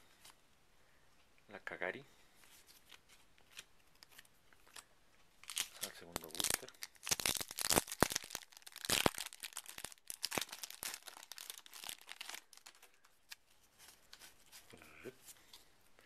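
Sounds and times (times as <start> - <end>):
foil wrapper tearing and crinkling: 5.4 - 13.4.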